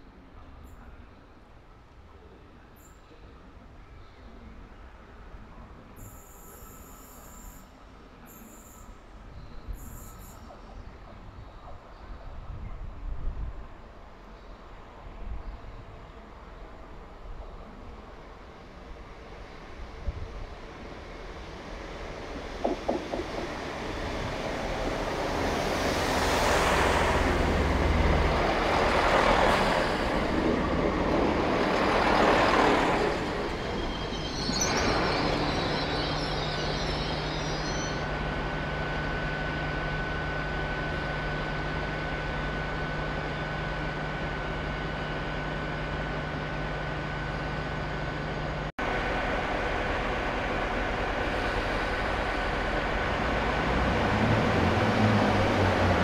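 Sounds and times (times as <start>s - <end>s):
train passing: 15.9s - 56.0s
brakes squealing: 28.6s - 38.2s.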